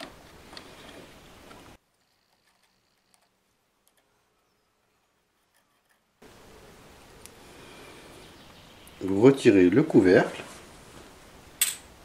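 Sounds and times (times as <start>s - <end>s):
room noise: 0.0s - 12.0s.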